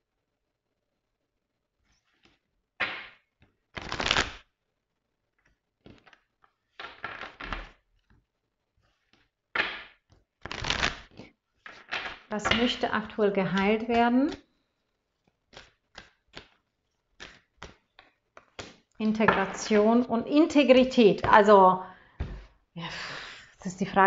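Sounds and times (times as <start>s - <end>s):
cards shuffled by hand: 1.9s - 4.5s, 5.3s - 8.2s, 8.8s - 12.6s, 13.5s - 18.9s.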